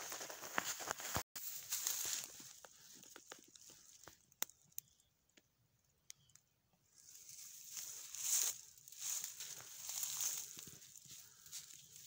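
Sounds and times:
footsteps crunching through dry leaves: 0.0 - 4.0, 7.0 - 12.0.

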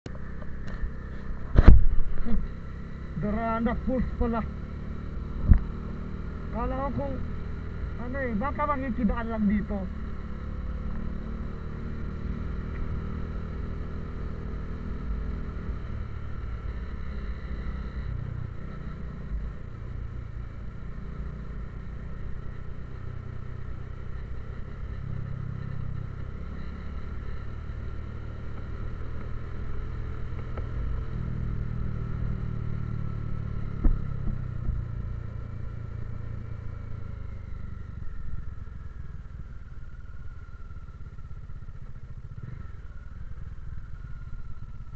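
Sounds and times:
motorcycle engine running: 0.0 - 44.9
road and wind rumble: 0.0 - 44.9.

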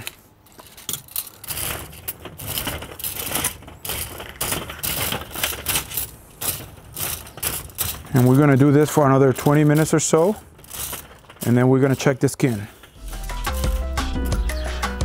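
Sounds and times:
coals scraping on metal grid: 0.0 - 14.0.

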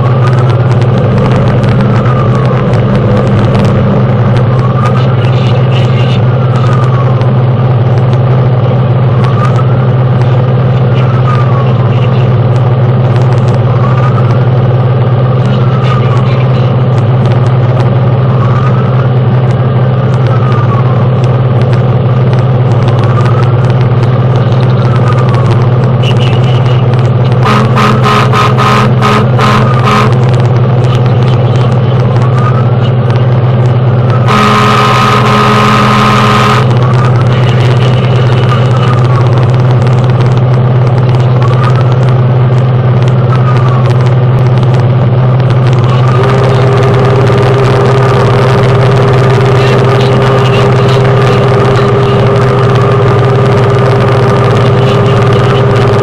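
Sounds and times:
fire engine motor droning: 0.0 - 56.0
horn short blasts: 27.4 - 30.3, 34.2 - 37.0
siren wailing: 34.0 - 39.3.

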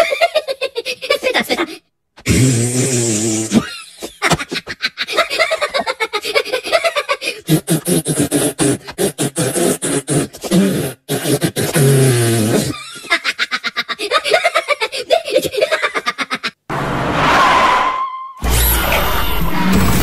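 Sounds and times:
beatboxing vocal clicks and pops: 7.5 - 12.7.

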